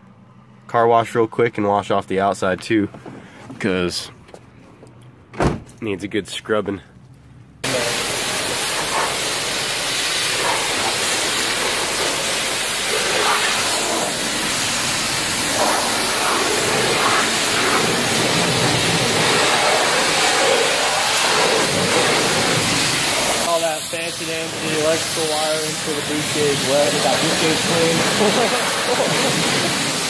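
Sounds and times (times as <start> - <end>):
high-pressure water spray hissing: 7.6 - 30.0.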